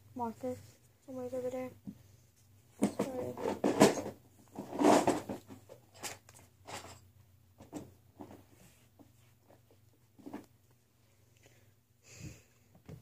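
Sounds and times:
faint rummaging rustles and knocks: 0.4 - 10.6.

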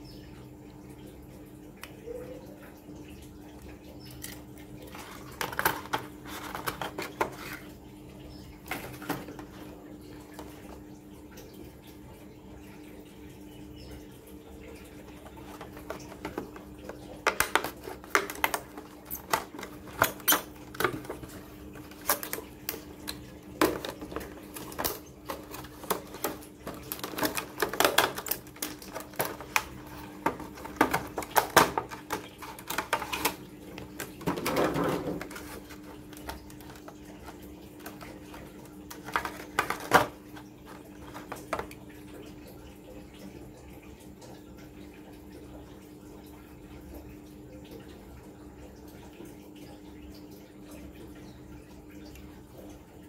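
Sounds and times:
plastic packaging clicking and crackling: 4.2 - 7.7, 15.2 - 41.8
crinkling rustle: 4.9 - 7.8, 15.2 - 41.8.

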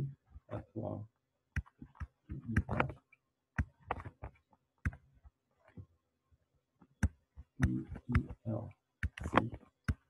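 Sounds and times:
stylus tapping tablet: 1.5 - 6.0, 6.8 - 10.0.

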